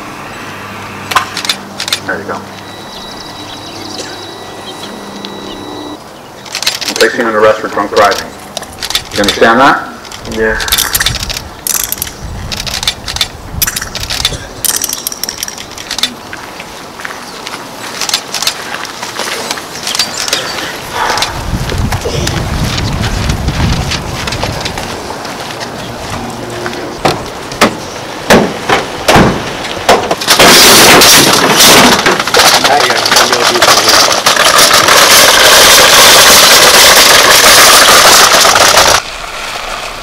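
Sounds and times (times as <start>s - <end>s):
loud rushing noise: 0.0s - 2.5s, 34.1s - 40.0s
handcuffs ratcheting closed: 10.1s - 16.2s
van doors clunking: 27.0s - 30.5s.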